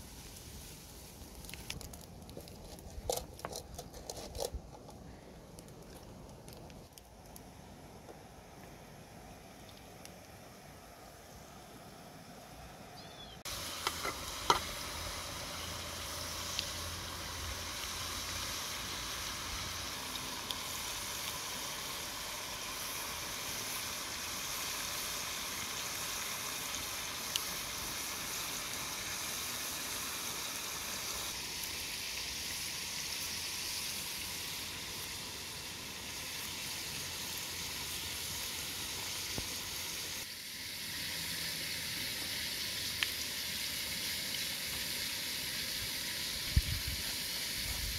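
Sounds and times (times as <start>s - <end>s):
food sizzling in a wok: 0.0s - 1.7s, 13.4s - 47.9s.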